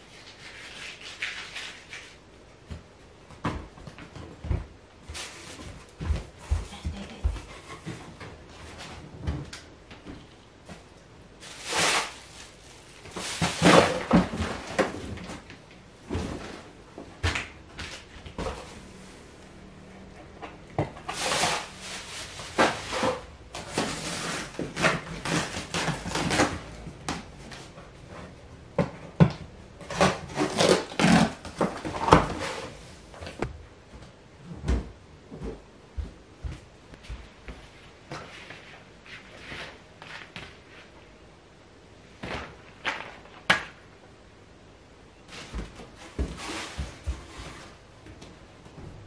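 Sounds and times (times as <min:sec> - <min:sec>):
rummaging through cardboard boxes: 0:03.4 - 0:19.2, 0:20.8 - 0:33.6, 0:45.3 - 0:47.8.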